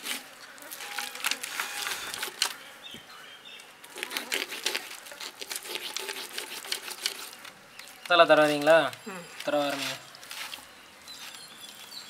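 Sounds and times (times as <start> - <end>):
fish scales crackling: 3.8 - 11.4
knife sawing through fish skin: 4.0 - 7.4.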